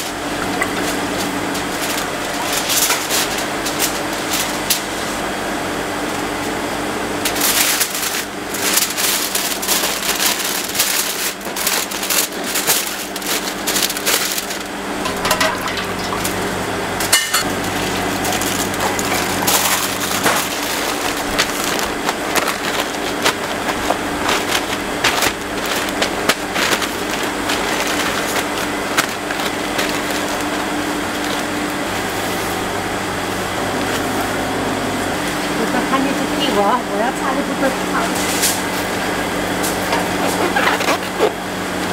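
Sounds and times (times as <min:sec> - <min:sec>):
aluminium foil crinkling: 0:00.0 - 0:05.3, 0:07.2 - 0:32.7, 0:37.3 - 0:41.8
steady low hum: 0:00.0 - 0:41.9.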